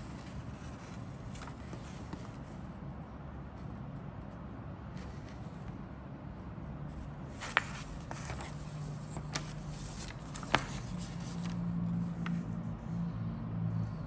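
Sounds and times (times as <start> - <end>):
paper rustling and crinkling: 0.0 - 2.6, 7.3 - 12.5.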